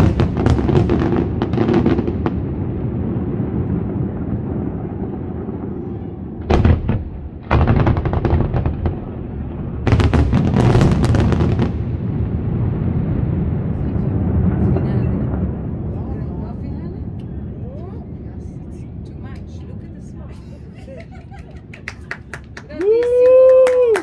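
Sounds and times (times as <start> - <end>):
crackling firework bangs: 0.0 - 17.0
low rumble: 0.0 - 21.7.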